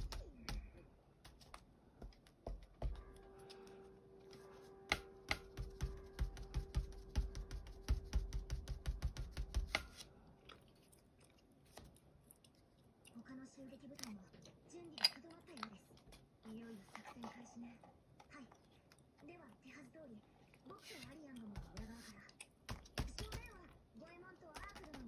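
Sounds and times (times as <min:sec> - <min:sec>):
foam dauber tapping on paper: 0:00.0 - 0:03.1, 0:04.9 - 0:10.0, 0:21.6 - 0:23.7, 0:24.5 - 0:25.0.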